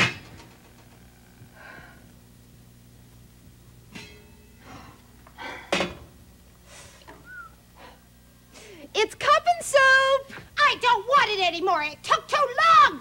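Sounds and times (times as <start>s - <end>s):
low electrical hum: 0.0s - 13.0s
metal lid clanking: 3.9s - 4.5s.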